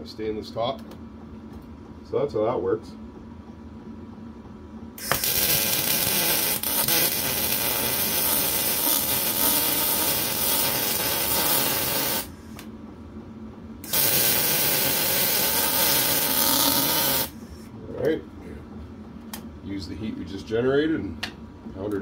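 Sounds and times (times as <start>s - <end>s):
welding arc crackling: 5.0s - 12.4s, 13.8s - 17.4s.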